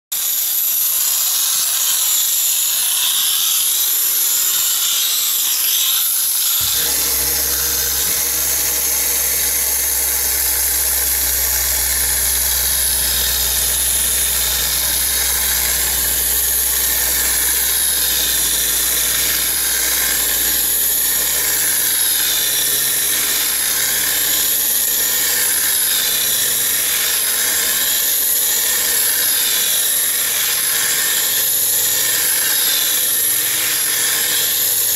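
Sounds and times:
gyroscope flywheel whining: 0:01.2 - 0:34.9
steady low hum: 0:06.6 - 0:25.7.

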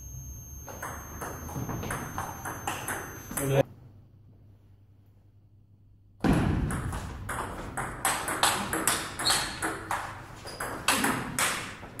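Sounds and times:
ping pong ball bouncing on table: 0:00.7 - 0:03.5, 0:06.6 - 0:11.8.

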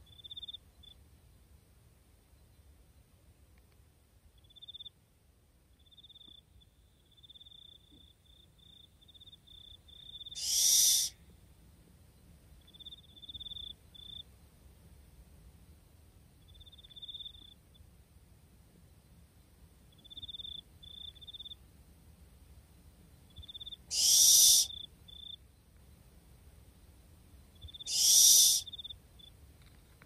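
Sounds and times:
owl trilling calls: 0:10.0 - 0:11.2, 0:23.4 - 0:25.2, 0:27.6 - 0:29.0
owl hissing screeches: 0:10.3 - 0:11.2, 0:23.9 - 0:24.8, 0:27.8 - 0:28.8.

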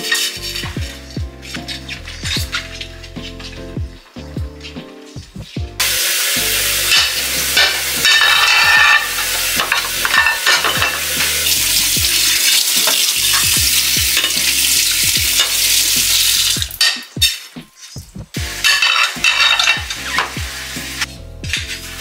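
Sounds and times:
food sizzling in a pan: 0:00.0 - 0:00.6, 0:05.8 - 0:22.0.

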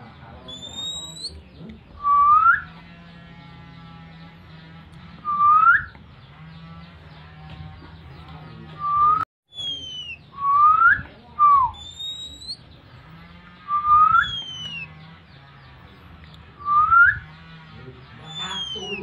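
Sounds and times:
whistled bird calls: 0:00.5 - 0:01.4, 0:02.0 - 0:02.8, 0:05.2 - 0:06.0, 0:08.8 - 0:12.7, 0:13.7 - 0:15.0, 0:16.6 - 0:17.4, 0:18.2 - 0:19.0.

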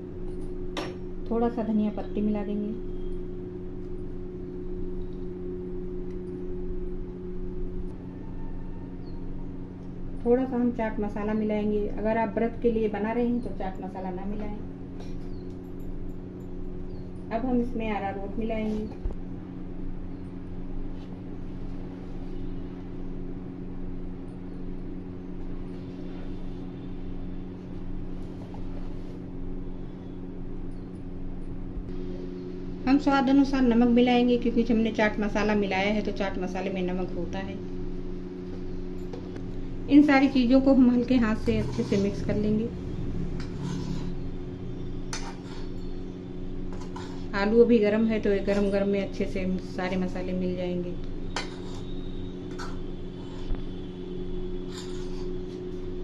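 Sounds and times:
low machine hum: 0:00.0 - 0:56.0
hands scraping a steel pan: 0:51.3 - 0:53.6.

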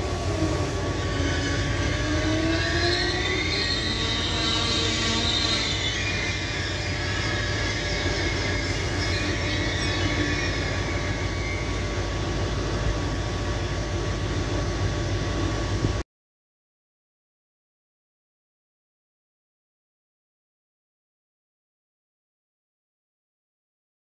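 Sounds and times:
train rumble: 0:00.0 - 0:16.0
train whining tones: 0:00.0 - 0:16.0.

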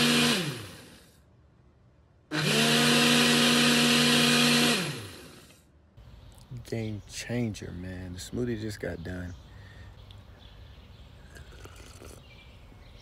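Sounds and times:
blender motor pulsing: 0:00.0 - 0:01.2, 0:02.3 - 0:05.7.

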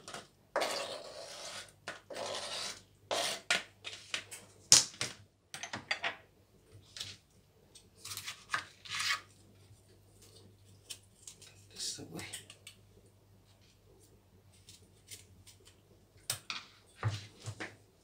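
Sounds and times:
knife scraping cutting board: 0:00.1 - 0:04.2, 0:08.0 - 0:09.3.

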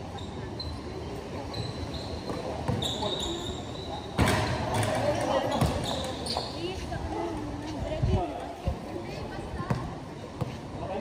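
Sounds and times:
sneakers squeaking: 0:00.0 - 0:07.8, 0:09.2 - 0:11.0
ball hitting backboard and rim: 0:04.2 - 0:05.0, 0:05.6 - 0:05.8
basketball dribbling on concrete: 0:05.6 - 0:05.8.

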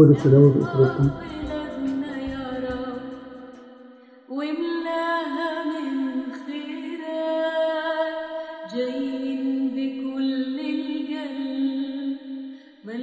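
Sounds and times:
music: 0:00.0 - 0:07.0
woman singing unaccompanied: 0:00.4 - 0:03.2, 0:04.3 - 0:12.2.

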